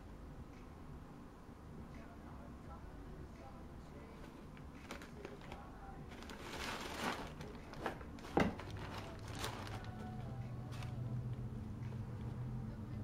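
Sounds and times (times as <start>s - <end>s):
packing paper rustling: 4.2s - 11.1s.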